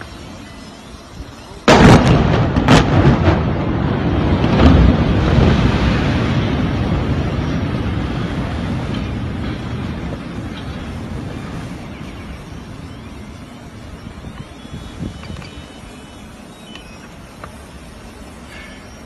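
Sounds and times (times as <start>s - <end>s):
explosive blasts: 1.6s - 12.9s
detonation cracks: 1.7s - 11.5s
rumble of building collapse: 1.7s - 12.0s.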